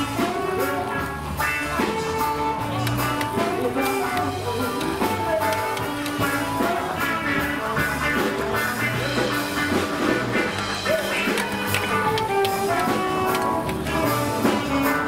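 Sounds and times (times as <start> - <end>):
music with drums and bass: 0.0 - 15.0.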